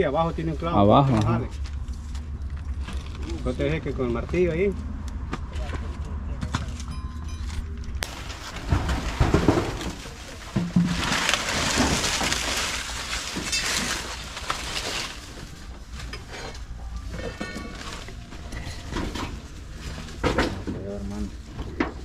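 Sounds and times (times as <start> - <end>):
loud rustling: 8.0 - 22.0.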